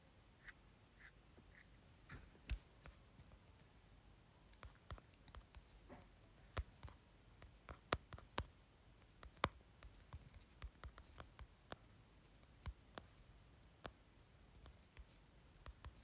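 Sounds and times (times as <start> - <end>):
light clicks and taps on phone: 6.5 - 13.2, 14.6 - 16.0.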